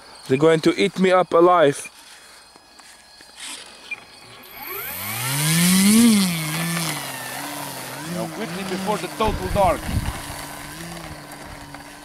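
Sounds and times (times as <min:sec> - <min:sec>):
model plane electric motor whine: 0:02.6 - 0:12.0.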